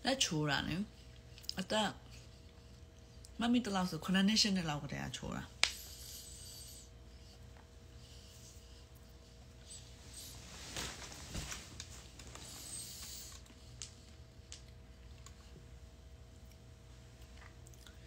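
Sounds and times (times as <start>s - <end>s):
faint steady hum: 0.0s - 18.0s
soft rustling: 9.8s - 13.2s.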